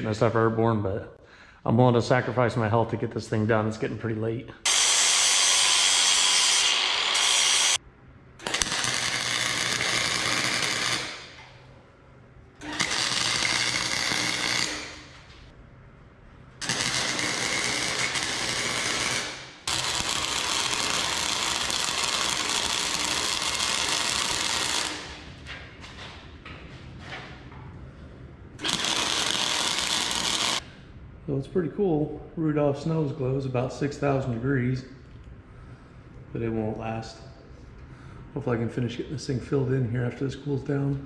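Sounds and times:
angle grinder grinding steel: 4.7s - 7.8s, 28.6s - 30.6s
welding arc crackling: 4.7s - 7.8s, 8.4s - 11.6s, 12.6s - 15.4s, 16.6s - 25.3s, 28.6s - 30.6s.

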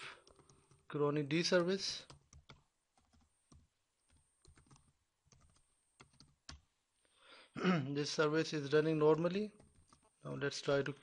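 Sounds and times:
faint keyboard typing: 0.0s - 6.7s, 9.4s - 10.2s.

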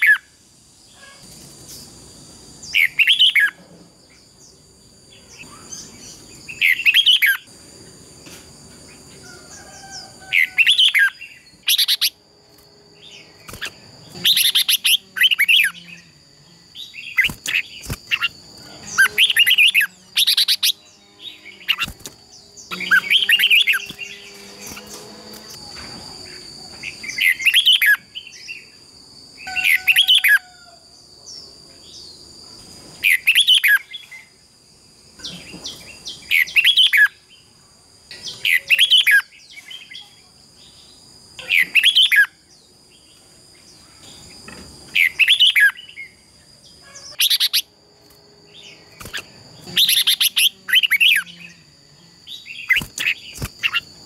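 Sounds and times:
bird singing warbling phrases: 0.0s - 0.3s, 2.6s - 7.5s, 9.9s - 12.2s, 13.0s - 24.8s, 26.9s - 28.8s, 33.0s - 34.3s, 35.2s - 37.5s, 38.1s - 40.8s, 41.4s - 42.4s, 43.1s - 47.7s, 48.6s - 53.9s.

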